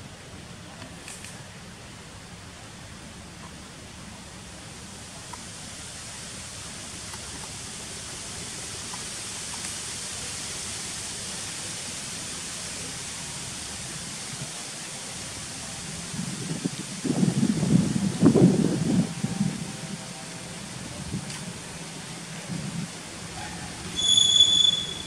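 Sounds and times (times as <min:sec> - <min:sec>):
outdoor background hiss: 0:00.0 - 0:25.0
faint ticks: 0:05.3 - 0:05.5, 0:08.9 - 0:09.8.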